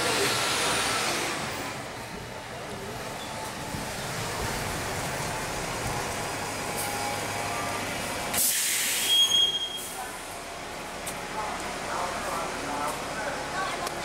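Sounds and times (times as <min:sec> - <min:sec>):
bus engine running: 0:00.0 - 0:14.0
pneumatic air hiss: 0:08.3 - 0:09.9
short high beep: 0:09.0 - 0:10.0.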